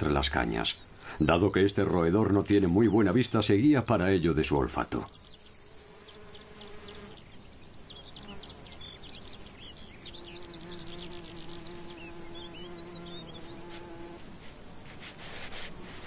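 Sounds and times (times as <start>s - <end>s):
flying insect buzzing: 4.8s - 16.0s.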